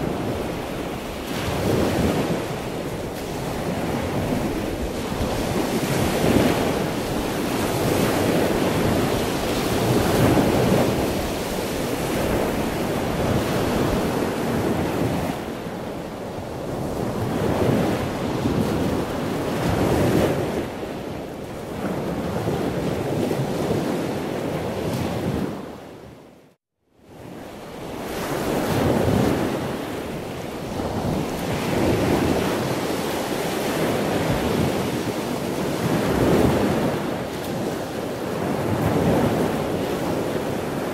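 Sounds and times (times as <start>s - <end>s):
sea waves washing in: 0.0s - 25.8s, 27.2s - 40.9s.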